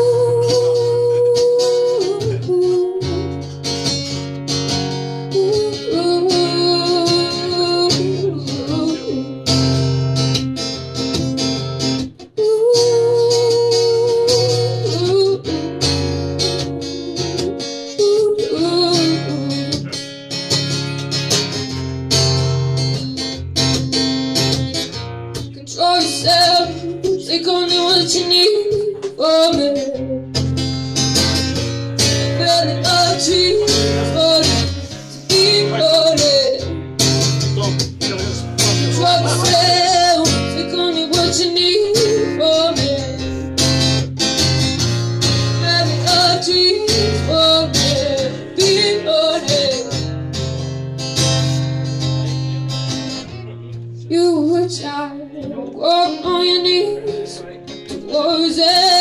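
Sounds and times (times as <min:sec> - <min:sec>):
woman singing: 0:00.0 - 0:03.5, 0:05.1 - 0:09.8, 0:12.2 - 0:20.0, 0:25.4 - 0:30.4, 0:32.0 - 0:37.3, 0:38.6 - 0:43.8, 0:45.2 - 0:50.1, 0:54.1 - 0:59.0
acoustic guitar strumming: 0:00.0 - 0:59.0.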